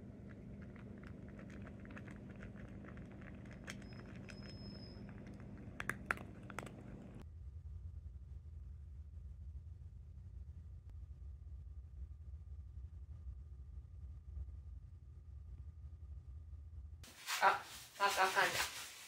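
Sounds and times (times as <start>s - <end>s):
cat crunching dry kibble: 0.0s - 7.2s
faint low room hum: 0.0s - 19.0s.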